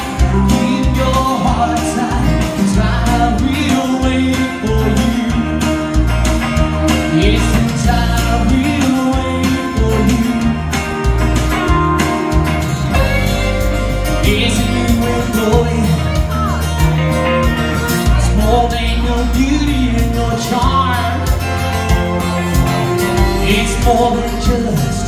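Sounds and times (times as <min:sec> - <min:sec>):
country-rock song on electric guitar: 0:00.0 - 0:25.0.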